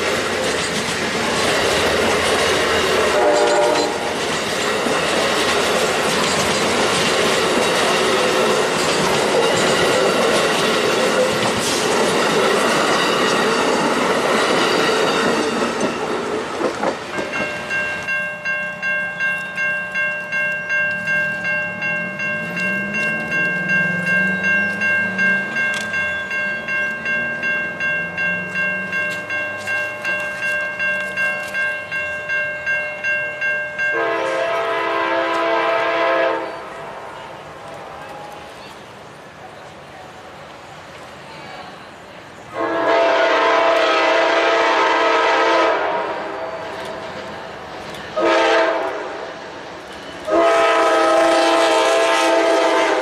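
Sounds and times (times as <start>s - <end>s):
crossing bells ringing: 0.0s - 37.4s
train cars rushing over rails: 0.0s - 53.0s
locomotive horn blowing: 3.1s - 4.2s, 33.9s - 36.7s, 42.5s - 46.4s, 48.2s - 49.2s, 50.2s - 53.0s.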